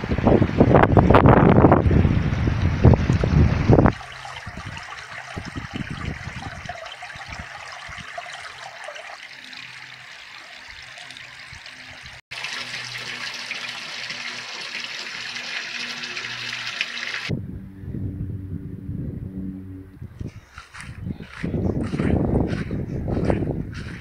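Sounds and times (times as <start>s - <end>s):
water pouring and splashing on stones: 3.1s - 17.3s.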